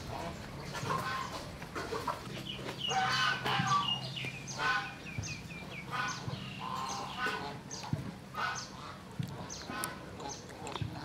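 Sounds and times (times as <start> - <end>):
fowl calling: 2.8 - 5.2, 5.8 - 7.7.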